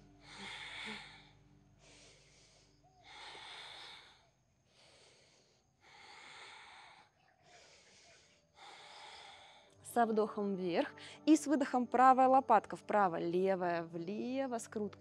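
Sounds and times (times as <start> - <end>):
woman breathing deeply: 0.0 - 9.8.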